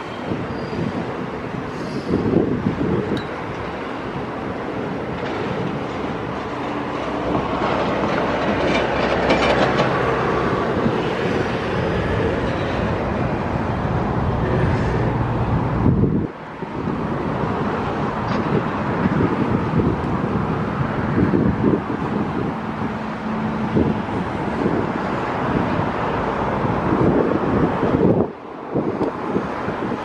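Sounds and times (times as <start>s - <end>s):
freight train rumble: 0.0s - 30.0s
wheels clattering on rails: 5.1s - 13.3s.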